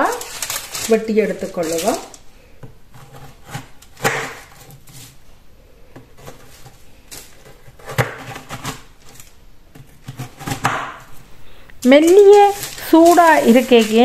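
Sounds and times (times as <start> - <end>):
knife cracking hard sweet slab: 3.5 - 4.6.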